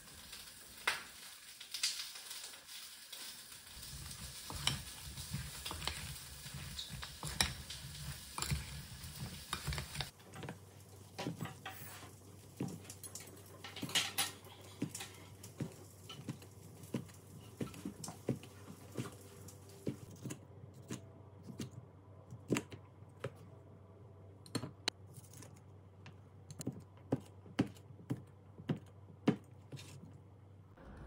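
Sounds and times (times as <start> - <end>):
faint low hum: 29.9 - 31.0.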